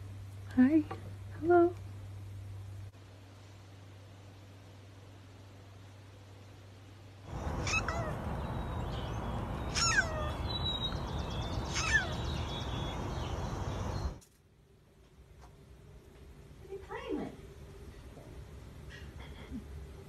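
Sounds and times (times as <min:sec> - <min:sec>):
steady background noise: 0:00.0 - 0:20.0
cat meowing: 0:07.5 - 0:08.4, 0:09.7 - 0:10.5, 0:11.7 - 0:12.2.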